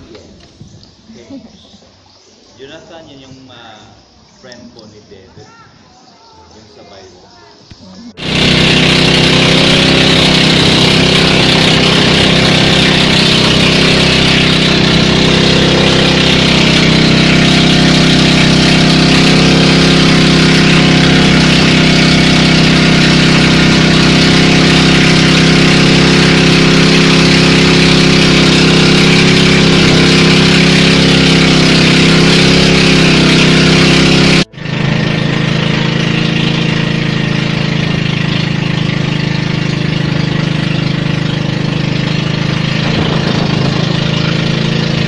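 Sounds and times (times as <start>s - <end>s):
boat engine running: 7.8s - 45.0s.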